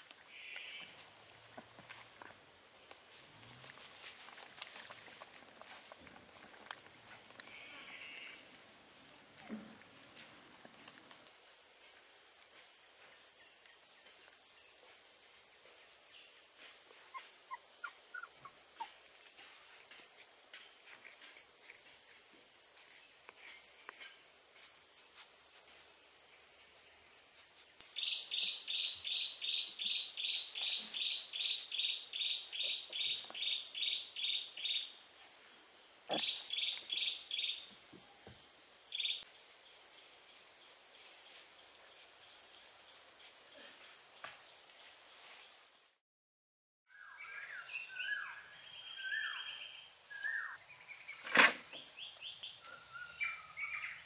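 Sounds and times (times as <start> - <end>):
insect drone: 0.0 - 46.0, 46.9 - 54.0
bird chirping: 16.1 - 19.0, 28.0 - 35.0, 36.1 - 37.9, 46.9 - 54.0.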